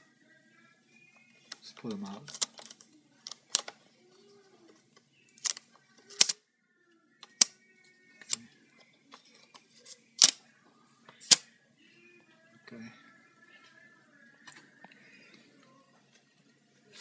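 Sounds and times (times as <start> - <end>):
plastic tabs clicking: 5.4 - 6.4.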